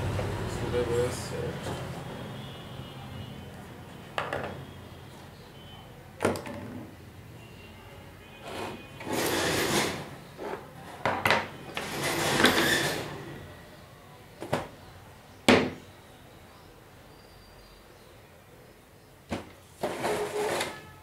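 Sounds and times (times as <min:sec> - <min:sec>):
tools knocking on wooden table: 0:04.2 - 0:04.6.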